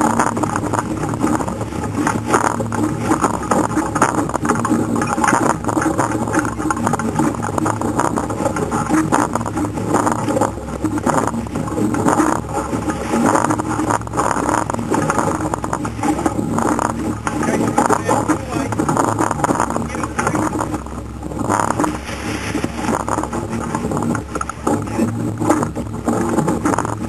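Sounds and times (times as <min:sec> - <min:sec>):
rushing water: 0:00.0 - 0:27.0
steady low hum: 0:00.0 - 0:27.0
wind on microphone: 0:00.0 - 0:27.0.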